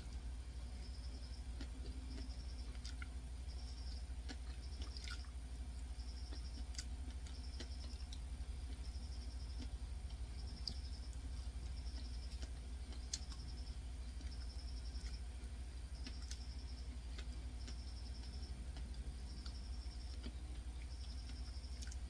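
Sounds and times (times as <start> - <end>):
steady low hum: 0.0 - 22.0
chewing and mouth clicks: 1.2 - 22.0.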